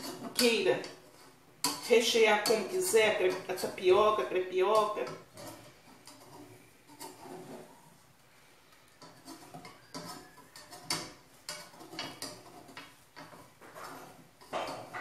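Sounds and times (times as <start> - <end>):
metal skimmer scraping frying pan: 0.0 - 15.0.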